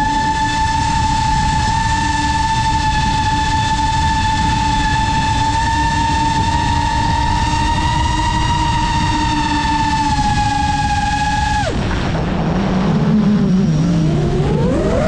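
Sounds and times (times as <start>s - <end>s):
drone motors whining: 0.0s - 15.0s
wind noise: 0.0s - 15.0s.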